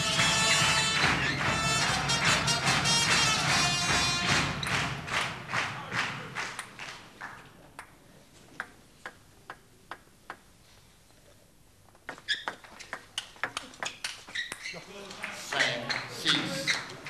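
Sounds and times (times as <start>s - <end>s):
table tennis rally: 0.0s - 10.6s, 11.9s - 17.0s
table tennis ball bouncing: 7.8s - 10.5s, 11.9s - 14.7s.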